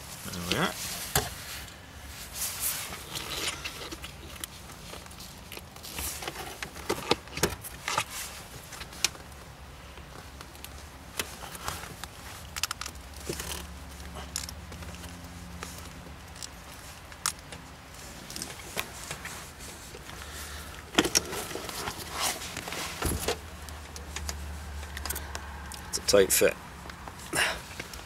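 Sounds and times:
rubber boot clicks and scrapes: 0:11.1 - 0:25.4.

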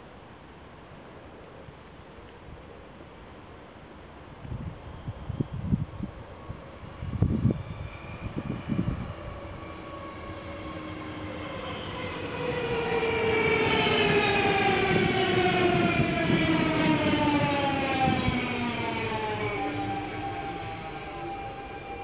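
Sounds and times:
rail and wheel noise: 0:00.0 - 0:22.0
electric train motors whining: 0:07.4 - 0:22.0.

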